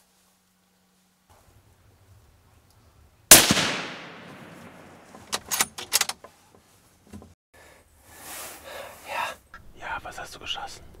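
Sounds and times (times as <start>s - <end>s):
suppressed rifle shot: 3.3s - 5.2s.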